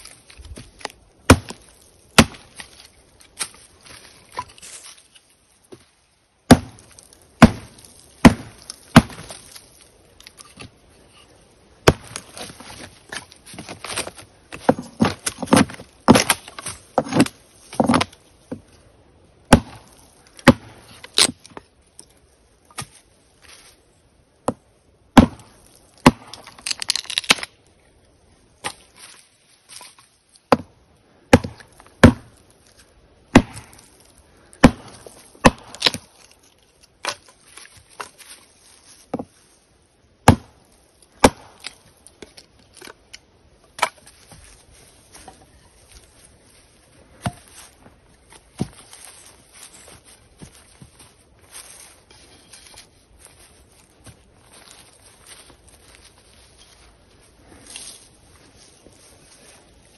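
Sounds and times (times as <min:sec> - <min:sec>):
wood being chopped: 0:00.5 - 0:02.8, 0:06.5 - 0:09.6, 0:11.8 - 0:18.6, 0:19.5 - 0:21.6, 0:24.4 - 0:24.6, 0:25.2 - 0:27.5, 0:30.5 - 0:32.4, 0:33.3 - 0:33.9, 0:34.6 - 0:36.2, 0:40.2 - 0:42.9, 0:43.7 - 0:44.5, 0:47.2 - 0:49.1.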